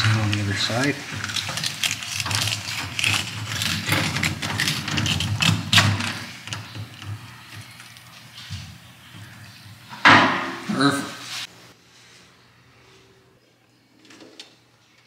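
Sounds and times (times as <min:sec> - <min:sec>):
knife scraping fish bones: 0:01.0 - 0:06.6.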